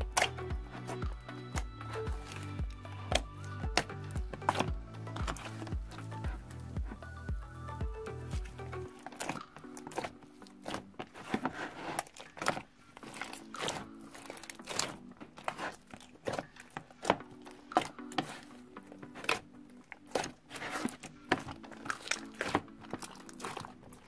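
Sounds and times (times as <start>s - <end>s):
soft background music: 0.0s - 24.0s
slime crackling and popping: 8.4s - 24.0s.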